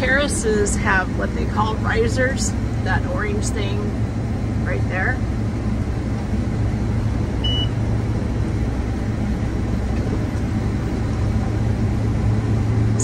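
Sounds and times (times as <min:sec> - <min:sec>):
combine engine and machinery rumble: 0:00.0 - 0:13.0
short high beep: 0:07.4 - 0:07.8.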